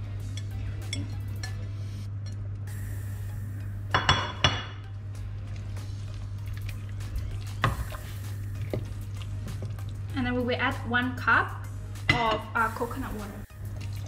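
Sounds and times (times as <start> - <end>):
low hum: 0.0 - 10.2.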